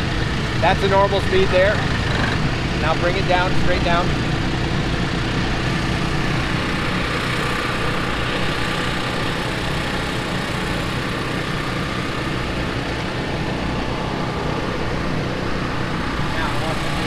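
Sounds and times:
loader engine running: 0.0 - 17.0.

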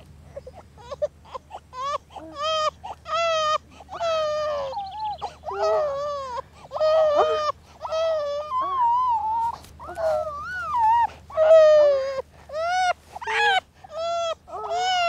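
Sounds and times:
baby crying: 0.4 - 15.0.

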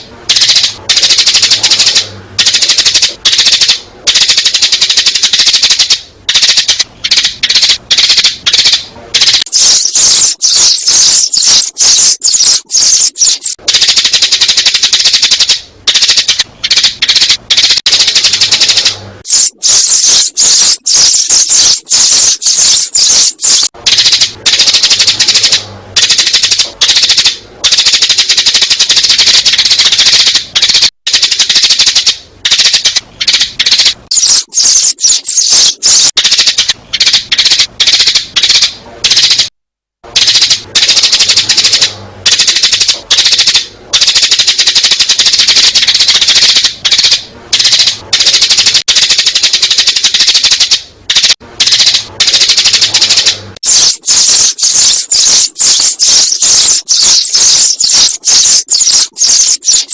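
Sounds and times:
sparrows chirping: 9.5 - 13.6, 19.3 - 23.7, 34.1 - 36.1, 53.7 - 59.9.

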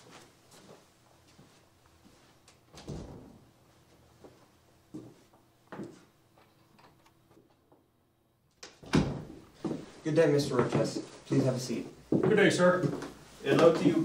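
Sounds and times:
footsteps: 0.0 - 6.6, 9.5 - 14.0
faint room hum: 0.0 - 14.0.

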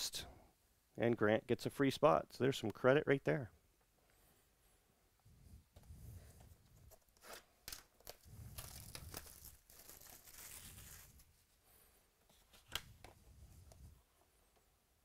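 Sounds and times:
plastic wrap tearing and crumpling: 7.2 - 11.3.

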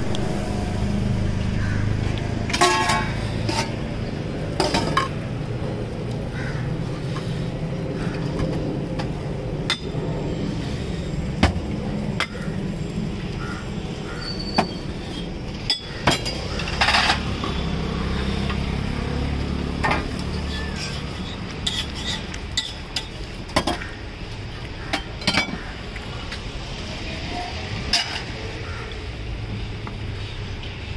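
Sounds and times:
low background rumble: 0.0 - 14.2.

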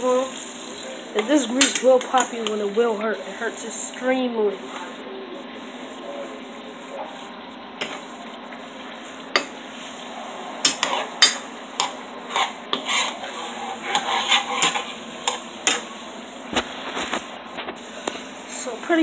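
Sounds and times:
utensil scraping frying pan: 8.9 - 18.3.

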